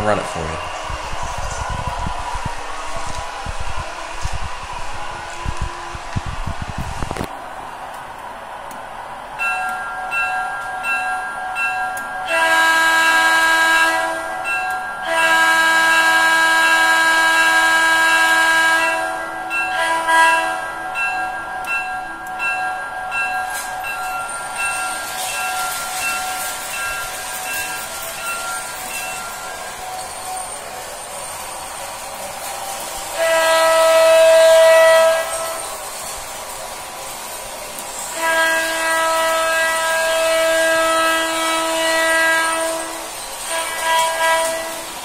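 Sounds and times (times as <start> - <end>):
model train running: 0.0 - 45.0
model train bell ringing: 9.4 - 16.6, 18.8 - 45.0
train horn blasts: 12.2 - 21.1, 33.1 - 35.8, 38.0 - 45.0.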